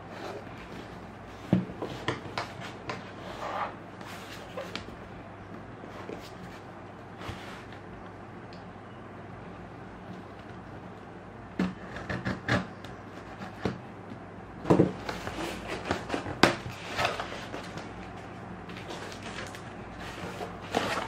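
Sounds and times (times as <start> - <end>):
cardboard flaps scraping open: 18.7 - 21.0.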